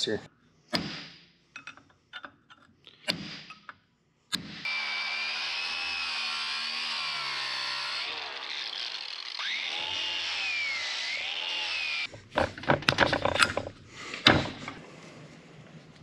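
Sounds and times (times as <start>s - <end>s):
knocks and clatter of metal part: 1.6s - 2.7s, 12.2s - 14.8s
angle grinder wire wheel on steel: 5.3s - 12.6s.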